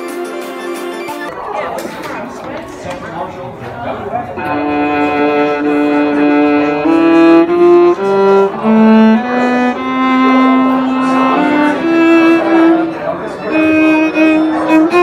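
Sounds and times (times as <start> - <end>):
bowed viola: 4.4 - 15.0.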